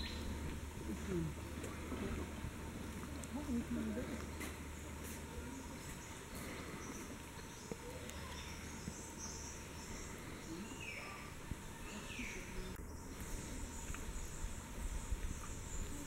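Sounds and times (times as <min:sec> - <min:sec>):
steady background hiss: 0:00.0 - 0:16.0
faint bird calls: 0:03.8 - 0:16.0.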